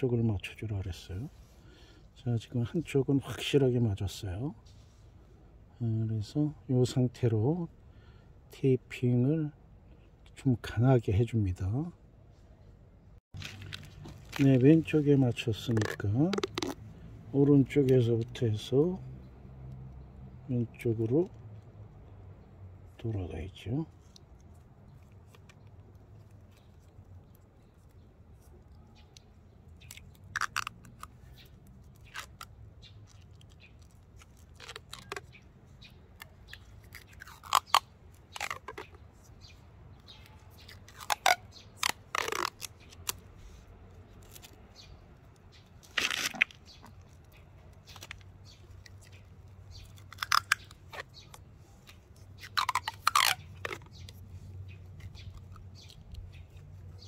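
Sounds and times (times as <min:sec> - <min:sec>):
plastic tape peeling and crackling: 0:13.4 - 0:18.5, 0:23.9 - 0:57.0.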